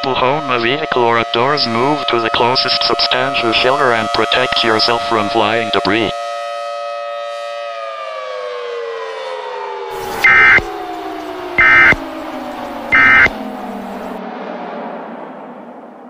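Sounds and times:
civil defence siren wailing: 0:00.0 - 0:16.0
loud buzzing data bursts: 0:10.0 - 0:10.7, 0:11.6 - 0:12.0, 0:12.8 - 0:13.4.

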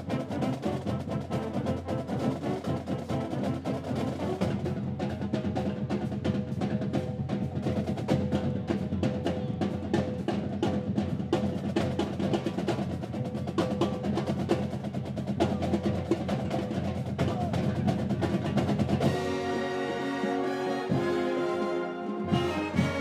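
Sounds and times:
brass and saxophones: 0:00.0 - 0:05.2, 0:19.0 - 0:23.0
rapid snare drum strokes: 0:00.0 - 0:23.0.

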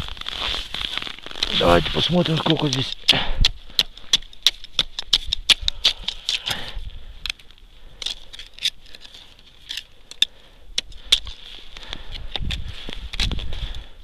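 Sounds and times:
ice chisel striking ice: 0:02.2 - 0:06.5.

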